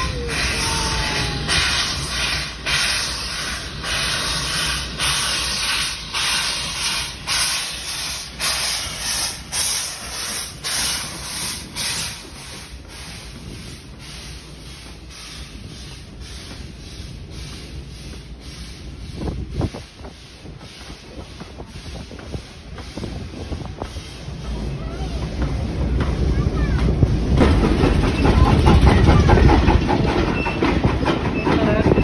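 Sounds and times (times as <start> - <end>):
steam locomotive chuffing: 0.0 - 32.0
low steady steam hiss: 0.3 - 25.8.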